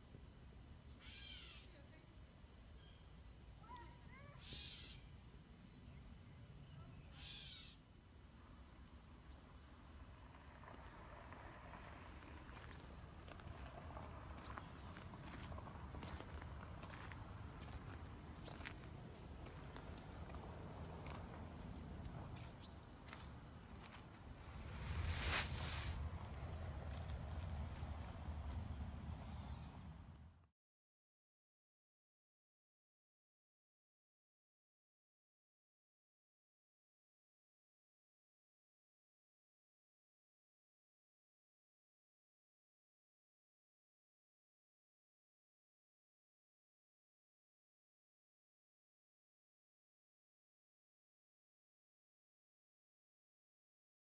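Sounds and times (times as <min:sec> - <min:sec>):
high-pitched insect chorus: 0:00.0 - 0:30.4
footsteps on gravel: 0:11.8 - 0:28.3.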